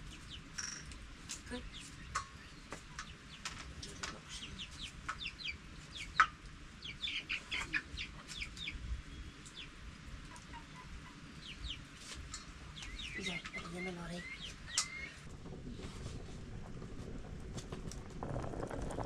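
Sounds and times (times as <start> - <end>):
chickens chirping: 0.0 - 15.3.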